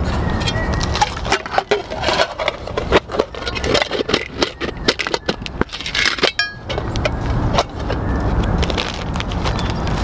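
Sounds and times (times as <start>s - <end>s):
metal cookware clinking: 6.2s - 6.7s
short metallic ring: 6.3s - 6.7s.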